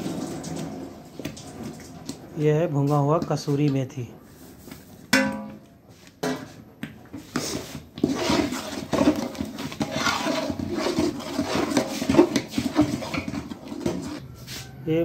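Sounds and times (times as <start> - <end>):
metal ladle scraping pot: 7.2 - 14.8.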